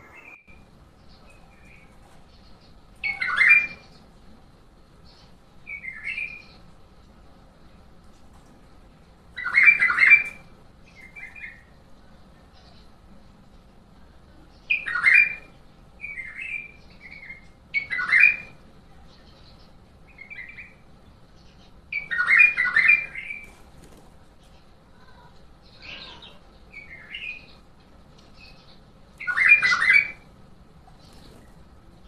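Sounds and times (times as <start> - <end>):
bird singing warbled phrases: 0.0 - 6.9, 9.3 - 13.2, 14.2 - 32.0.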